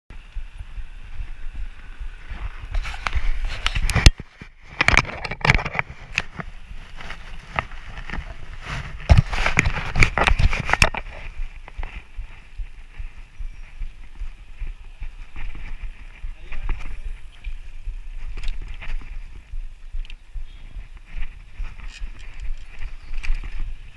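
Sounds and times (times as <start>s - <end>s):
wind rumble on microphone: 0.1s - 23.9s
bicycle frame and basket rattling: 2.2s - 12.1s, 21.1s - 23.9s.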